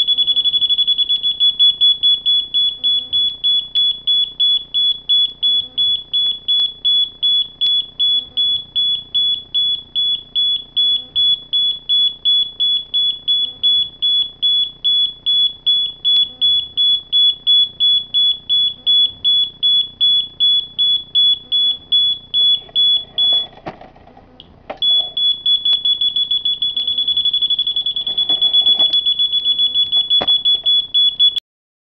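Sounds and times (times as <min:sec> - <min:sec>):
high-pitched electronic beeping: 0:00.0 - 0:02.0, 0:24.8 - 0:31.4.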